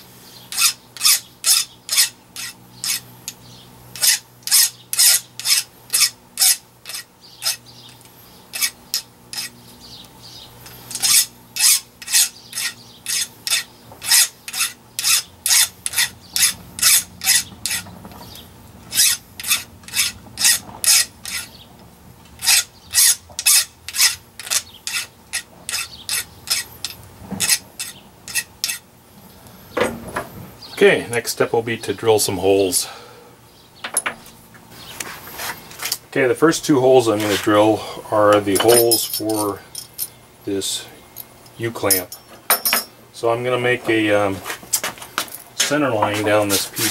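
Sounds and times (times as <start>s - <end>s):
hand file scraping metal: 0.5s - 3.1s, 4.0s - 7.6s, 8.5s - 9.6s, 10.7s - 17.9s, 18.9s - 21.5s, 22.4s - 28.8s.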